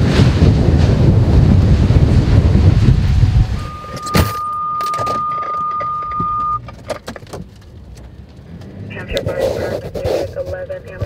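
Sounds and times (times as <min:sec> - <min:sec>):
wind buffeting microphone: 0:00.0 - 0:04.1
high electronic beep: 0:03.2 - 0:06.6
scattered clicks and knocks: 0:04.0 - 0:08.7.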